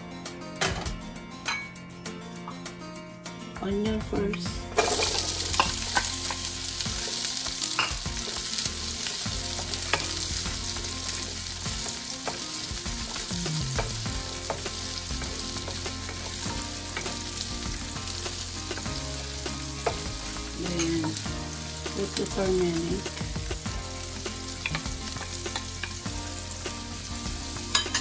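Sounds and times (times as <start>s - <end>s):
onion sizzling in hot oil: 4.5s - 28.0s.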